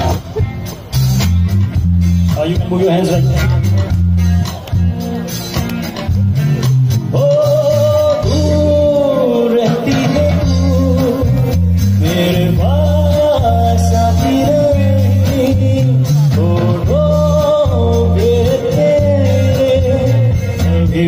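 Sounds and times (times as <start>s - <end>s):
bass guitar: 0.0s - 21.0s
drums: 0.0s - 21.0s
electric guitar: 0.0s - 21.0s
man singing: 7.0s - 21.0s.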